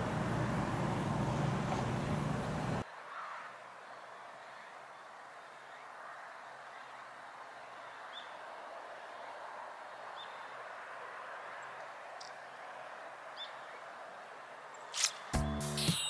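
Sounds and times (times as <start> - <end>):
soft outdoor hiss: 0.0 - 16.0
background music: 15.3 - 16.0.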